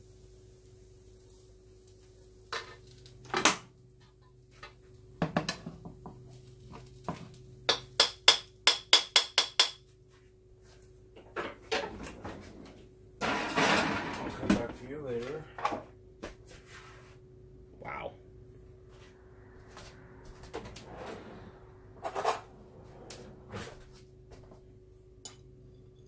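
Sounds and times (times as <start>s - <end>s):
utensil knocking frying pan: 5.2s - 6.2s, 7.0s - 9.9s
clattering noise: 11.2s - 14.8s.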